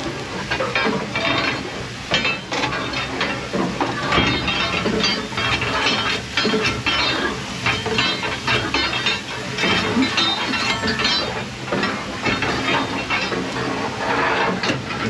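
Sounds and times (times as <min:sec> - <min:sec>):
fire iron clinking and scraping: 0:00.0 - 0:15.0
steady hiss of steam: 0:00.0 - 0:15.0.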